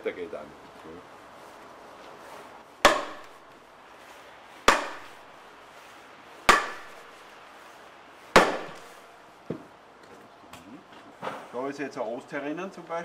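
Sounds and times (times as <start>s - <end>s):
mallet knocking splitting blade: 2.8s - 3.4s, 4.7s - 5.2s, 6.5s - 7.0s, 8.4s - 8.9s.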